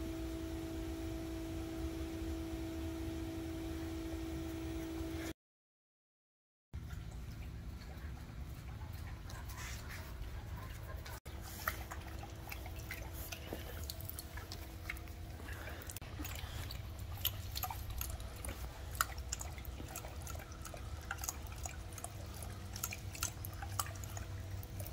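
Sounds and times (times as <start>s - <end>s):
steady low hum: 0.0s - 5.3s, 6.8s - 24.9s
dog lapping water: 6.8s - 24.9s
water dripping from hose nozzle: 11.6s - 24.9s.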